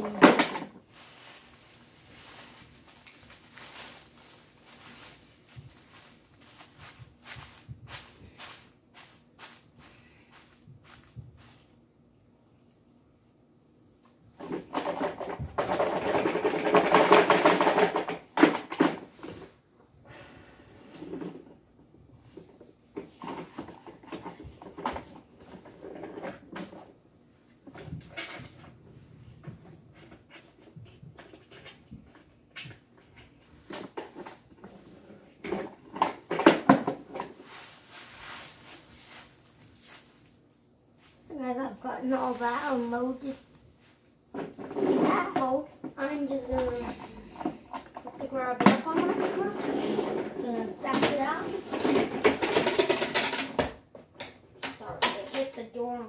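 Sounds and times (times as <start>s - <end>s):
plastic bin rattling: 0.0s - 11.6s, 14.4s - 19.5s, 33.6s - 40.2s, 47.8s - 53.7s
paper rustling: 0.8s - 11.8s, 37.3s - 40.4s
plastic toy clicks and clacks: 14.7s - 19.0s, 51.7s - 55.5s.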